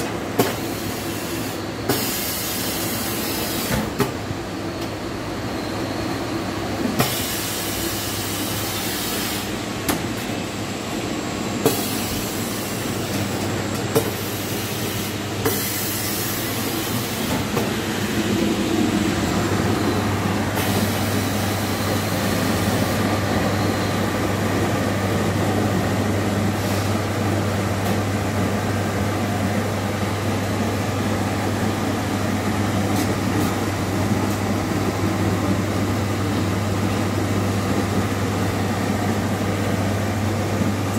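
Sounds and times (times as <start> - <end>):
machine humming and rattling: 0.0 - 40.9.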